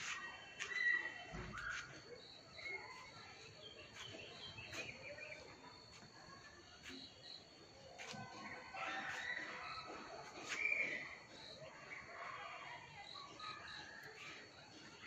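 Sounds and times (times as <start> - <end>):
bird chirps: 0.0 - 6.0.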